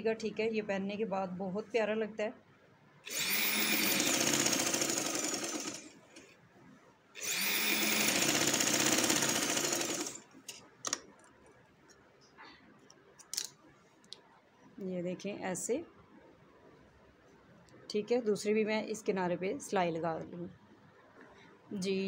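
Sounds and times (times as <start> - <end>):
sewing machine running: 3.1 - 5.9, 7.2 - 10.2.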